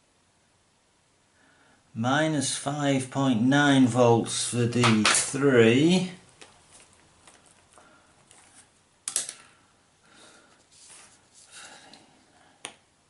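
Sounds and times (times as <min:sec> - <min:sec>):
faint rustling: 0:06.3 - 0:09.6, 0:10.2 - 0:12.4.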